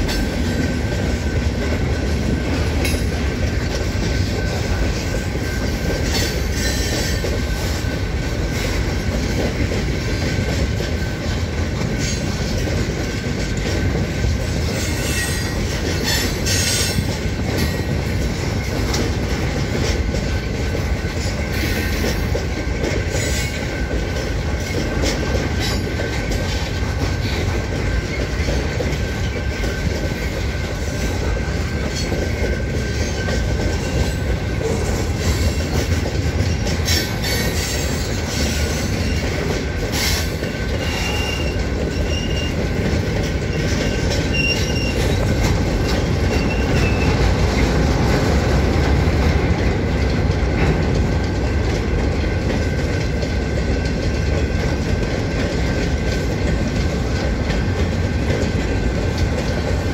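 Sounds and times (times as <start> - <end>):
train wheels rumbling over rails: 0.0 - 59.9
high wheel squeal: 40.0 - 42.6, 43.5 - 47.2.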